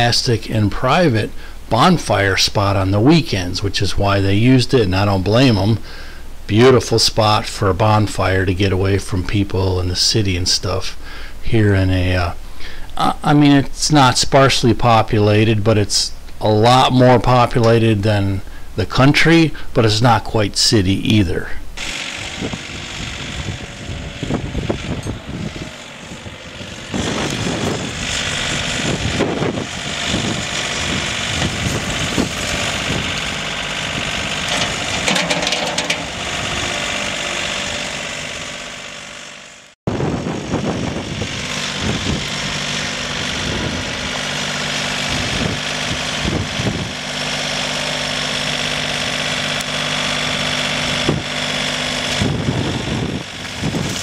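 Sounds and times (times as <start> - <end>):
tractor diesel engine running: 21.2 - 54.0.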